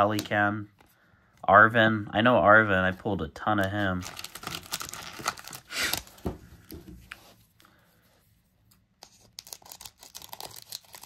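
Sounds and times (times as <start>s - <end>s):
foil pack and cards crinkling: 3.4s - 6.8s, 9.0s - 11.0s.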